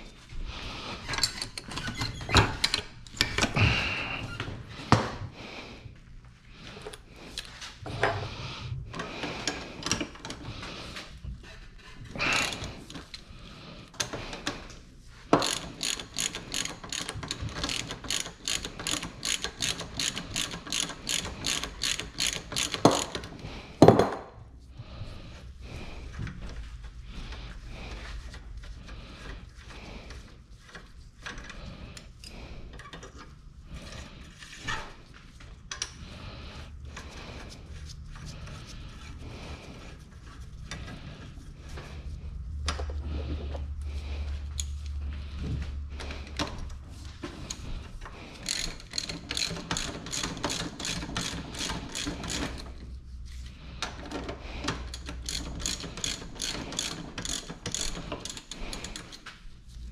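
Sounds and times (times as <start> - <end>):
tool clicks and handling noise: 1.1 - 3.6, 15.3 - 24.2, 44.4 - 45.0, 46.0 - 52.8, 53.8 - 59.5
ratchet wrench clicking: 15.4 - 23.3, 48.4 - 52.8, 54.9 - 59.2.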